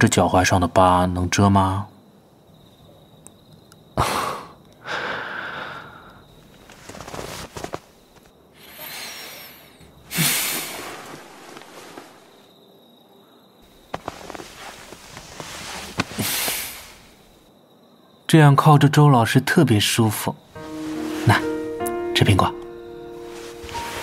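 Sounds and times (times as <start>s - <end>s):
person breathing: 4.0s - 6.3s, 8.6s - 12.2s, 15.7s - 17.3s
rustling: 6.3s - 12.6s, 13.6s - 17.4s, 20.5s - 21.8s, 23.1s - 24.0s.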